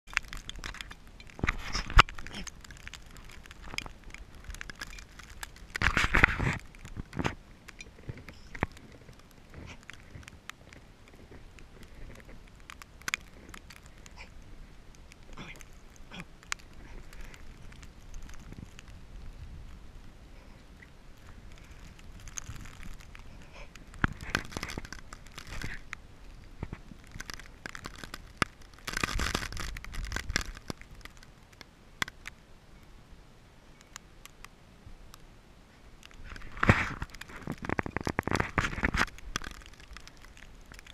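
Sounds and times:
snow ticking against microphone: 0:00.0 - 0:33.0, 0:33.7 - 0:40.9
wind buffeting microphone: 0:16.7 - 0:24.8.

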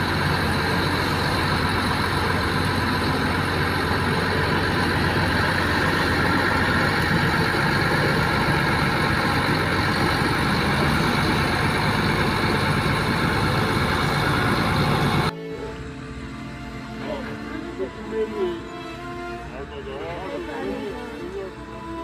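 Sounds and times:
bulldozer pushing soil: 0:00.0 - 0:15.3
heavy diesel engines under load: 0:00.0 - 0:22.0.

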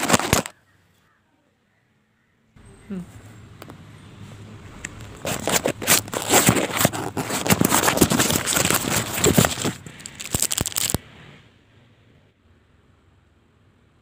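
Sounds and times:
plastic wrappers crinkling: 0:00.0 - 0:00.5, 0:05.1 - 0:11.0.

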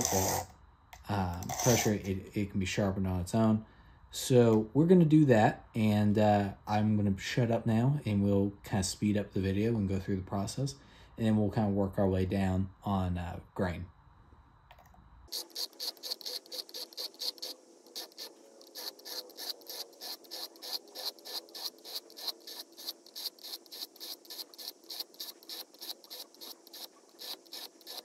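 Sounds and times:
blades scraping on sharpening stone: 0:00.0 - 0:00.5, 0:01.4 - 0:02.1, 0:15.3 - 0:28.0.

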